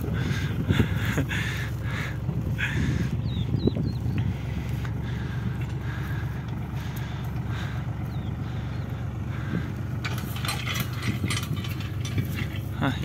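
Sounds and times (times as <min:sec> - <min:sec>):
tractor diesel engine running: 0:00.0 - 0:13.0
rustling and clattering: 0:09.3 - 0:13.0.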